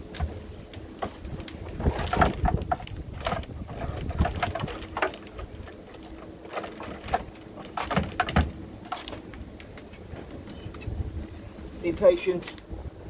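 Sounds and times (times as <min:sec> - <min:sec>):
tools knocking and clattering: 0:01.0 - 0:10.8.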